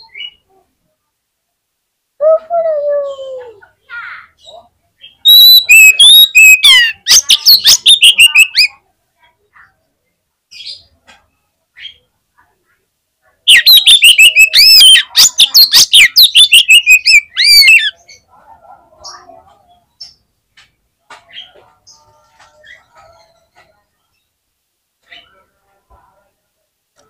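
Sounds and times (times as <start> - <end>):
bird singing rapid whistles: 5.3 - 8.7, 13.5 - 17.9.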